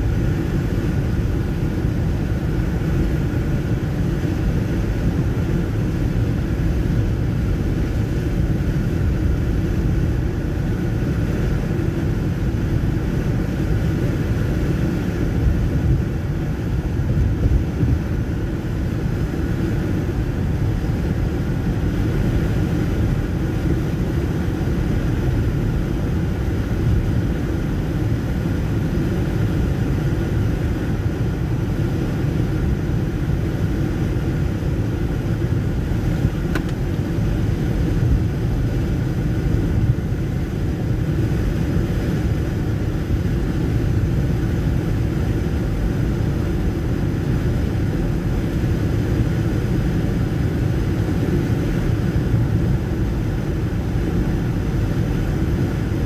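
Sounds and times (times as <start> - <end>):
car road rumble: 35.3 - 41.6.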